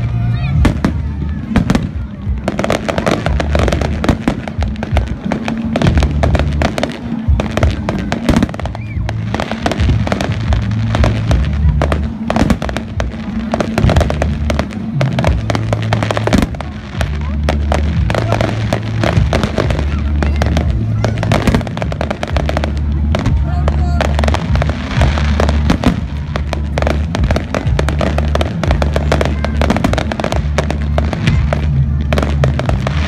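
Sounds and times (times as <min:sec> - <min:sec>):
bass-heavy music: 0:00.0 - 0:33.0
fireworks bursting and crackling: 0:00.0 - 0:33.0.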